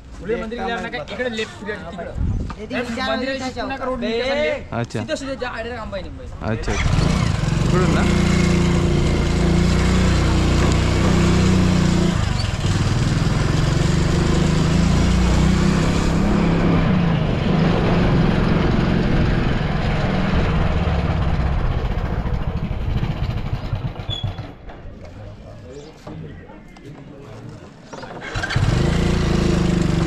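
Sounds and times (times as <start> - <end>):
wind rushing over microphone: 2.1 - 2.6
small motorcycle engine running: 6.7 - 16.2, 18.1 - 24.6, 28.2 - 30.0.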